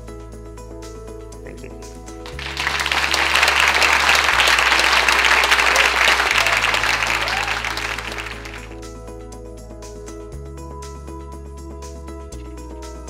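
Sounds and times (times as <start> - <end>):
background music: 0.0 - 13.0
audience applauding: 2.3 - 8.8.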